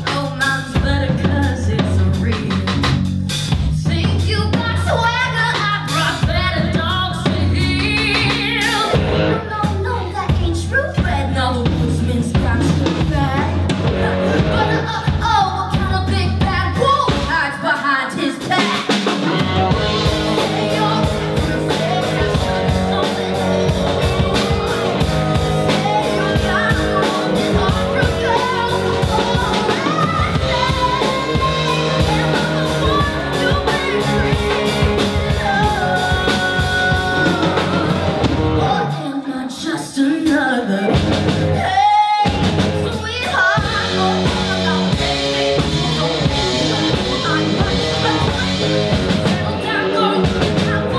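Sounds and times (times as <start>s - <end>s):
woman singing: 0.0s - 3.0s, 3.6s - 50.9s
live rock band playing: 0.0s - 39.2s, 40.2s - 50.9s.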